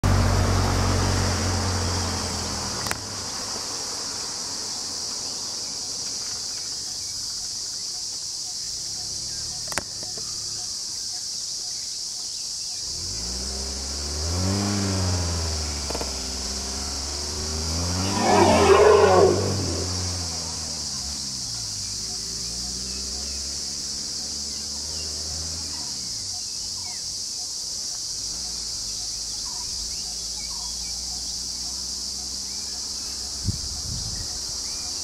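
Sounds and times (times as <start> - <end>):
vehicle engine running: 0.0 - 11.8, 12.7 - 35.0
high insect drone: 0.9 - 35.0
rough burst: 14.7 - 21.6
low pitched rising and falling sound: 16.3 - 20.8.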